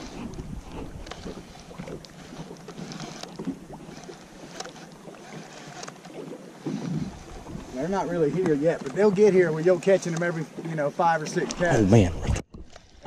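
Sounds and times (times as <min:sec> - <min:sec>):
wind buffeting microphone: 0:00.0 - 0:02.4, 0:06.6 - 0:08.9
light ticks and splashes: 0:00.0 - 0:11.6
waves lapping against boat hull: 0:00.0 - 0:13.0.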